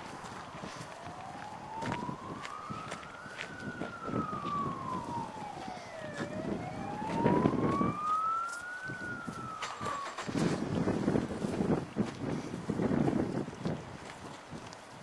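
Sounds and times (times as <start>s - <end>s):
emergency vehicle siren wailing: 0.0s - 11.5s
low gusty rumble: 0.0s - 14.8s.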